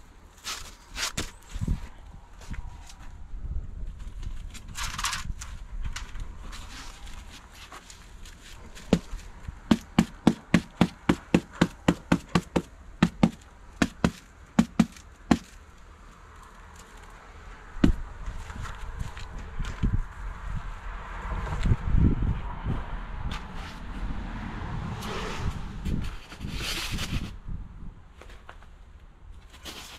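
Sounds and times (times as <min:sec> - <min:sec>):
sharp knocks: 0:08.8 - 0:15.5.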